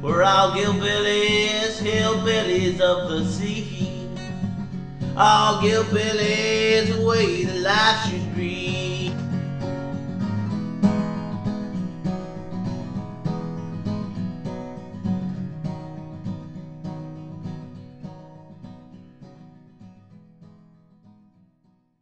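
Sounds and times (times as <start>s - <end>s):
strummed acoustic guitar: 0.0s - 21.9s.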